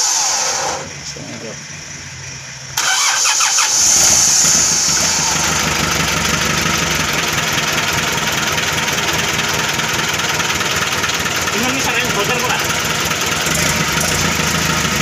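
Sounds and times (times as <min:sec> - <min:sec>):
diesel engine running: 0:00.0 - 0:15.0
starter motor cranking: 0:02.8 - 0:06.3.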